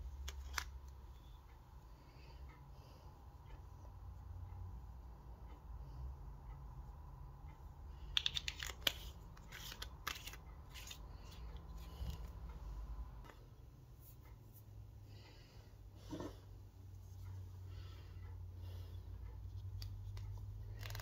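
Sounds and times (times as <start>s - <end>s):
small clicks and scrapes: 0.2s - 1.4s, 8.0s - 12.6s, 19.2s - 21.0s.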